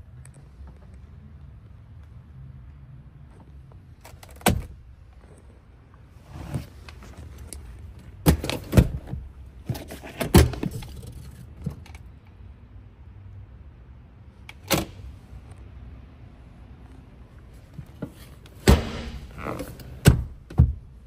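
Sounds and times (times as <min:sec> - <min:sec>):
handling knocks and clunks: 0:06.4 - 0:12.0, 0:17.7 - 0:21.0.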